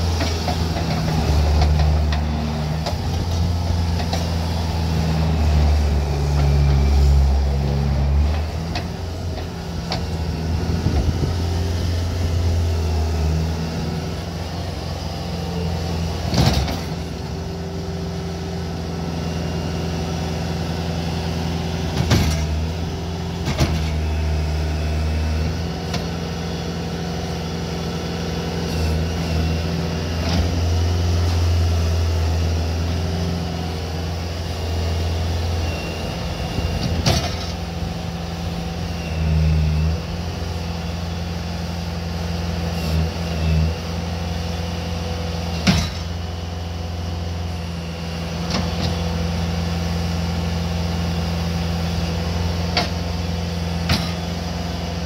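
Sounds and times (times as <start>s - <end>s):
loader diesel engine running: 0.0s - 55.0s.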